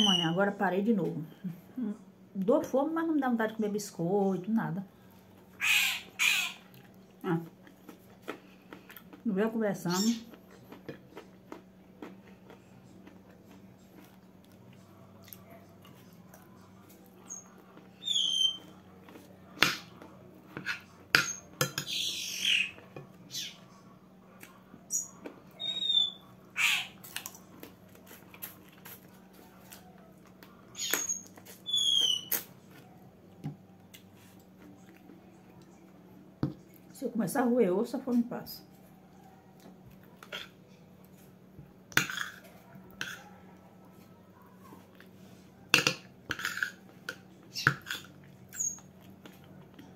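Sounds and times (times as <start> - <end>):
bird chirping: 0.0 - 0.4, 18.0 - 18.7, 21.3 - 23.6, 24.9 - 26.9, 30.8 - 32.4
faint steady hum: 0.0 - 49.9.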